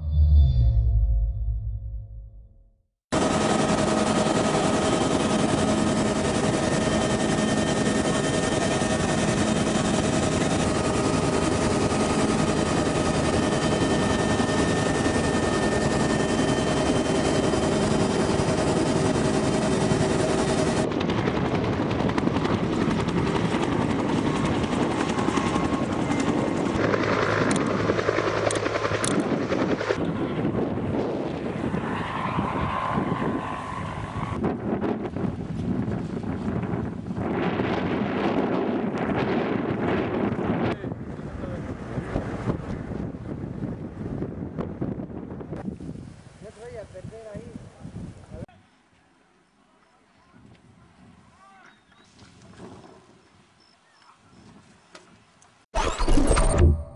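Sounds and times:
helicopter engine and rotor: 0:03.2 - 0:31.5.

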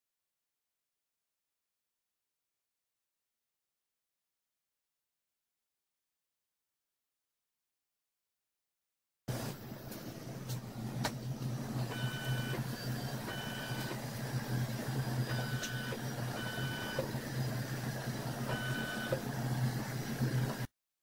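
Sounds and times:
low electric hum: 0:09.3 - 0:20.7.

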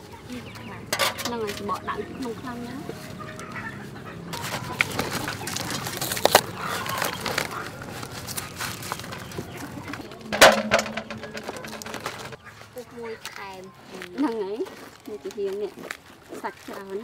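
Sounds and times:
fruit fibres tearing and snapping: 0:04.9 - 0:09.2.

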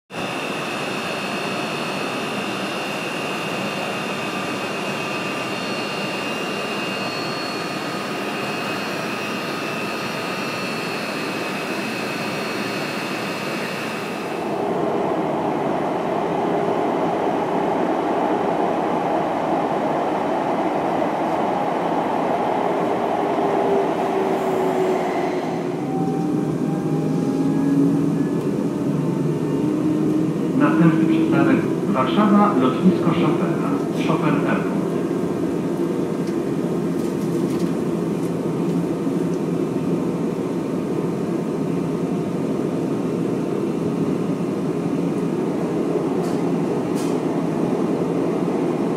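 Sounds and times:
train running noise: 0:43.9 - 0:48.9.

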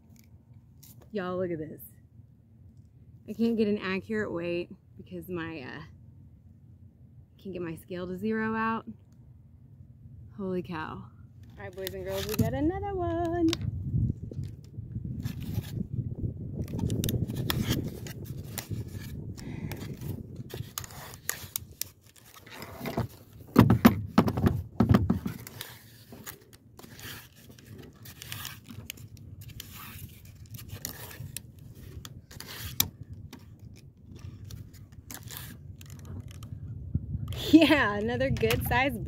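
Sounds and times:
fishing line scraping against float: 0:14.3 - 0:16.0, 0:16.6 - 0:23.4, 0:25.3 - 0:36.6.

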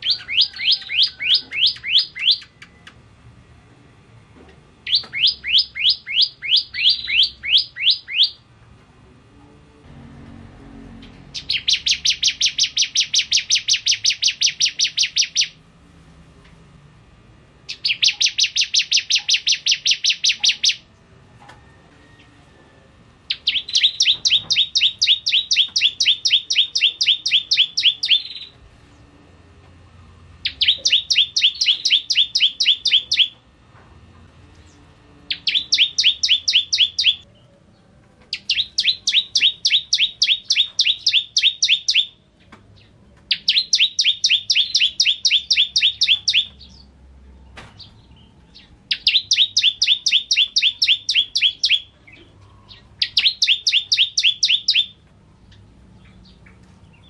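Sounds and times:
bird singing sharp rapid notes: 0:00.0 - 0:02.9, 0:04.8 - 0:08.4, 0:11.2 - 0:15.6, 0:17.7 - 0:20.8, 0:23.3 - 0:28.5, 0:30.4 - 0:33.4, 0:34.7 - 0:37.2, 0:38.3 - 0:42.2, 0:42.8 - 0:46.9, 0:47.7 - 0:55.0.

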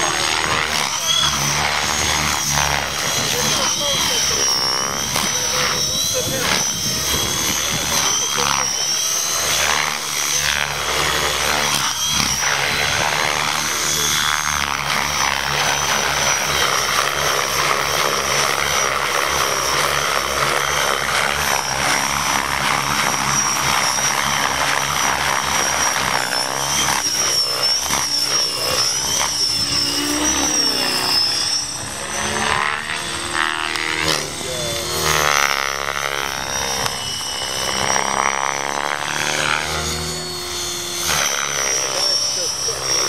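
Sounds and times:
rc helicopter motor whine: 0:00.0 - 0:43.0
rotor blades rushing: 0:00.0 - 0:43.0.

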